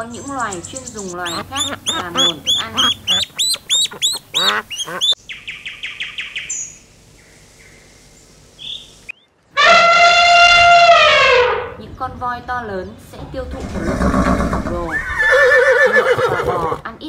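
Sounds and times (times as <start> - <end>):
ducklings peeping: 0.0 - 7.8
elephant trumpeting: 9.6 - 11.8, 13.6 - 16.8.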